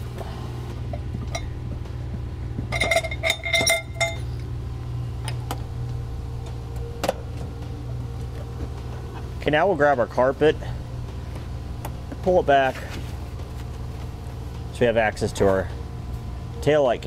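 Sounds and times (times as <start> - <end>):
steady low hum: 0.0 - 17.0
metal tools clinking: 2.7 - 4.4.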